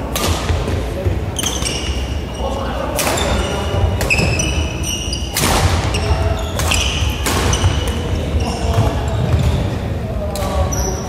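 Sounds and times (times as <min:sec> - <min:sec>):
rackets striking shuttlecock: 0:00.1 - 0:00.8, 0:05.3 - 0:08.1
shoes squeaking on wooden floor: 0:01.4 - 0:09.6.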